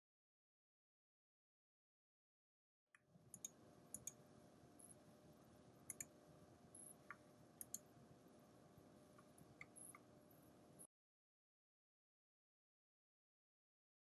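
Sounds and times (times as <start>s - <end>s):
quiet room hum: 3.0s - 10.9s
computer mouse clicks: 3.3s - 4.2s, 5.9s - 6.2s, 6.8s - 7.9s, 9.2s - 10.1s.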